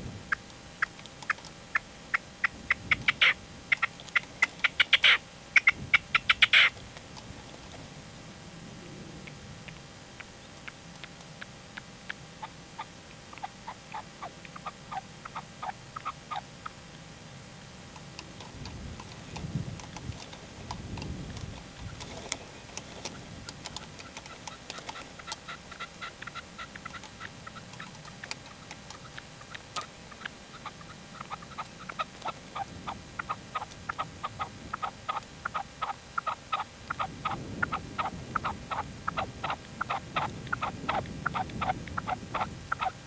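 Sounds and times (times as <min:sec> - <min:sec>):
partridge calling: 0:00.3 - 0:06.8, 0:10.1 - 0:16.8, 0:21.3 - 0:43.0.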